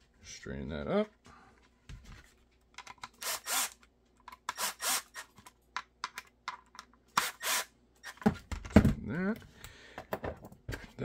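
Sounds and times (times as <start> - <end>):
impact driver driving screws: 3.0 - 3.8, 4.4 - 5.4, 7.1 - 8.2.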